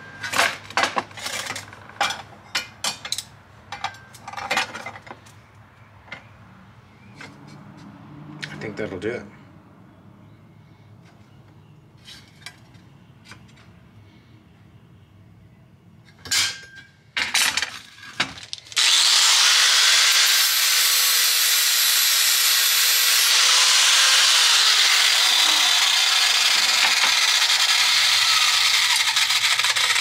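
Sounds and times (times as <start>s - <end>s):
angle grinder cutting steel: 18.8s - 30.0s.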